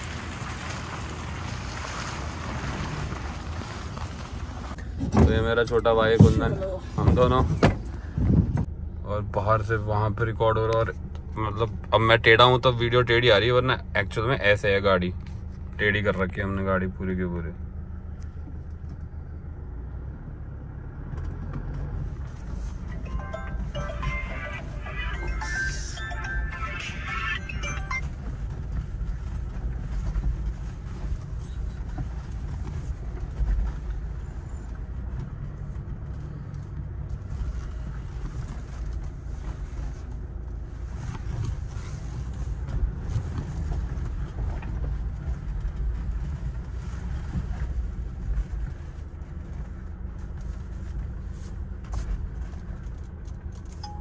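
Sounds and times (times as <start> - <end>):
diesel engine rumble: 0.0 - 54.0
tyres on dirt track: 0.0 - 54.0.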